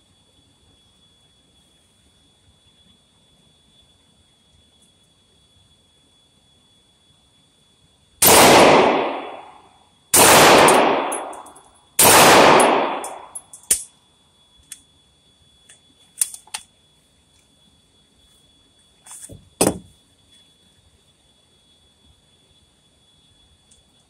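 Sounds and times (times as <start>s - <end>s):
gunshots echoing indoors: 8.2s - 9.6s, 10.2s - 13.4s
light clicks and clinks: 13.0s - 13.9s.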